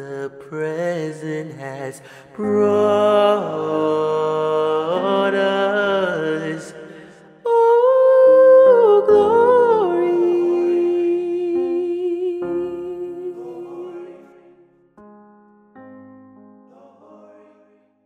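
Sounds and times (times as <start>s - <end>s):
soft keyboard chords: 7.5s - 16.9s.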